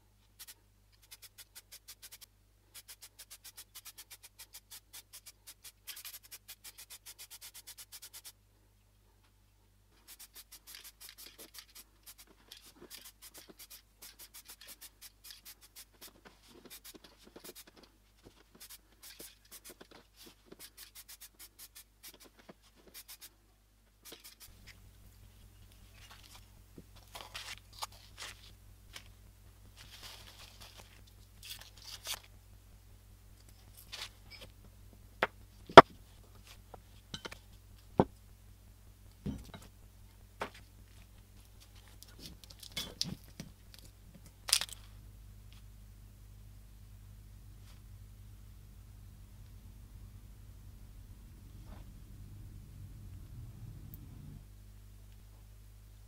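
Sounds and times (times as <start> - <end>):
low hum: 44.8 - 56.0.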